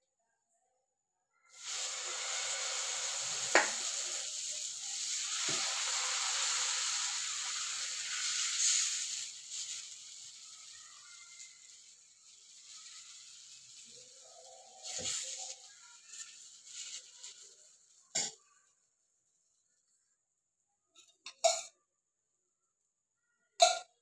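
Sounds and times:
batter sizzling on hot pan: 0:01.4 - 0:19.4.

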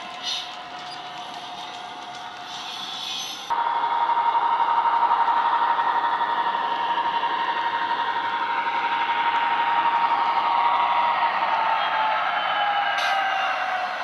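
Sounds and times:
diesel engine sound from small speaker: 0:03.5 - 0:14.0
high whine: 0:03.5 - 0:14.0.

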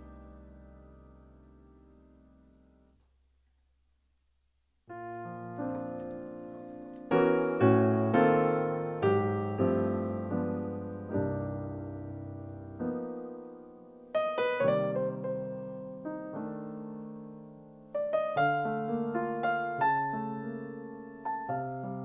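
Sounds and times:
piano chords: 0:00.0 - 0:03.0, 0:04.9 - 0:22.0.

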